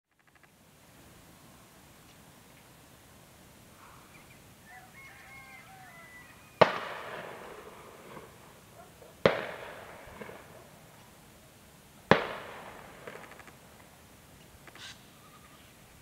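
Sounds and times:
faint bird chirping: 3.7s - 6.6s, 14.3s - 16.0s
echoing gunshots: 6.6s - 11.0s, 12.1s - 13.8s.

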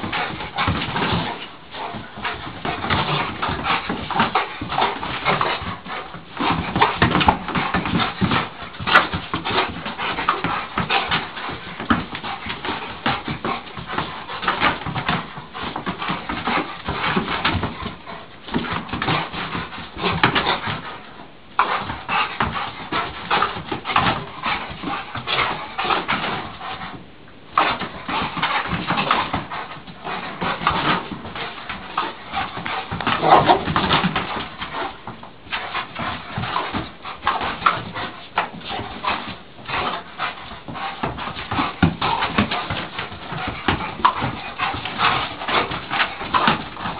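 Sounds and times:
dog playing with balloon: 0.0s - 46.9s
dog whimpering: 33.2s - 33.8s.

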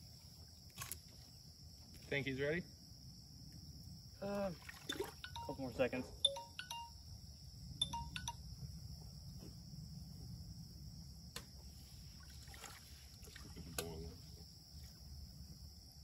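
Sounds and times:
insect drone: 0.0s - 16.0s
water sloshing in a pot: 12.2s - 13.8s.

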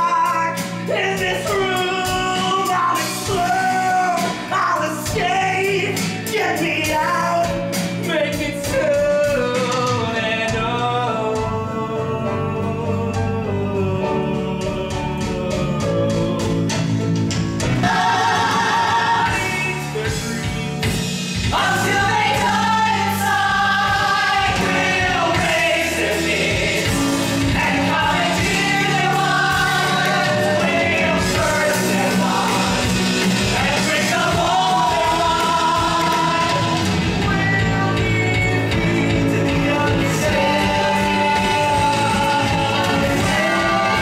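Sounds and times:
rock band playing: 0.0s - 11.7s, 13.6s - 44.0s
voices singing together: 9.0s - 17.0s, 17.7s - 20.6s, 21.4s - 44.0s.

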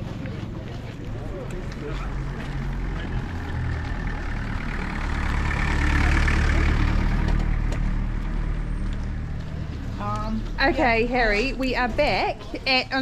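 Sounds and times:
car driving past on dirt: 1.8s - 9.6s.

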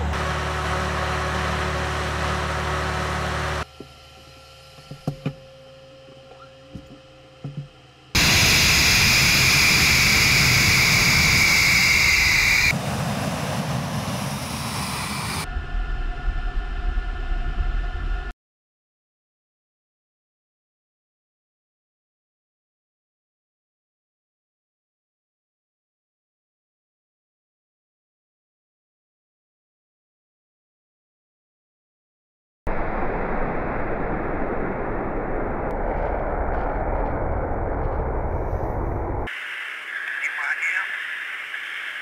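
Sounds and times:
high turbine whine: 0.0s - 18.3s, 32.7s - 42.0s
jet engine noise: 8.1s - 18.3s, 32.7s - 42.0s.

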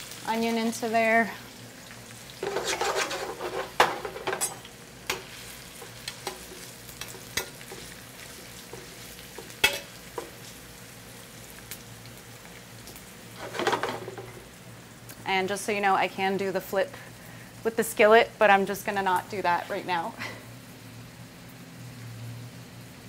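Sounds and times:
onion sizzling in hot oil: 0.0s - 23.0s
utensil scraping through onion: 2.4s - 3.8s.

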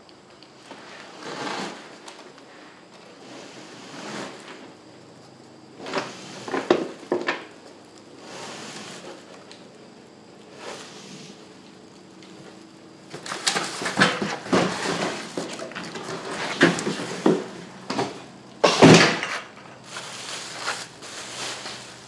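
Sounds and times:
plastic wrap and cardboard rustling: 13.1s - 22.0s.

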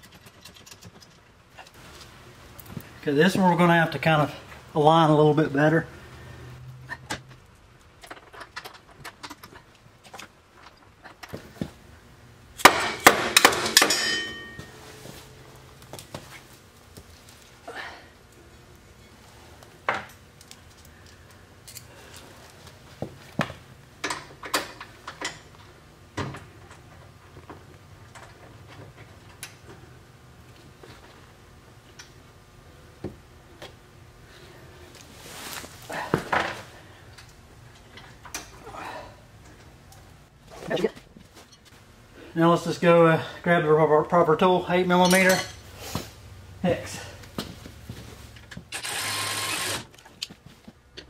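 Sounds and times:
metal clinks and knocks: 12.6s - 16.1s
ringing metal clanks: 12.9s - 15.2s.

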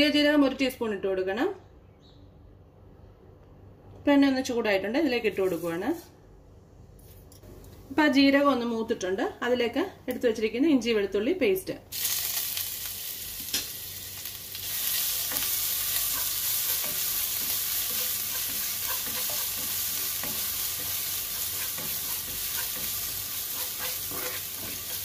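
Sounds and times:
paste and seeds sizzling in oil: 11.9s - 25.0s
spatula stirring in a pan: 14.8s - 25.0s.

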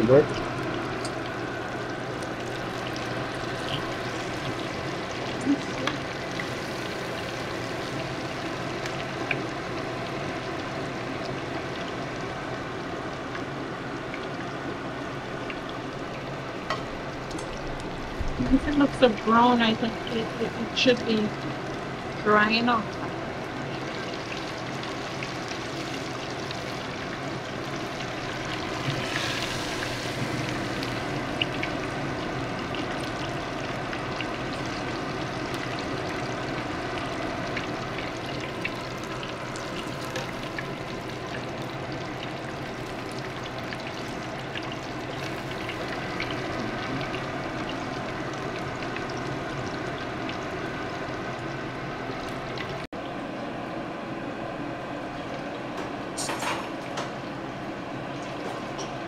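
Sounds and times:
fish sizzling in hot oil: 0.0s - 52.9s
oil crackling and popping: 0.3s - 12.2s, 23.0s - 51.0s.

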